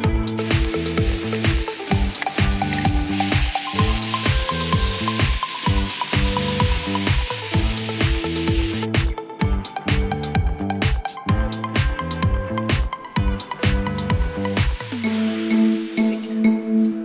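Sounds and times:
background music with steady beat: 0:00.0 - 0:17.0
steak sizzling on hot griddle: 0:00.4 - 0:08.9.

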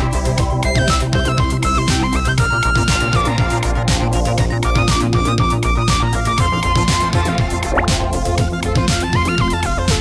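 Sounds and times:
upbeat electronic music: 0:07.5 - 0:08.6.

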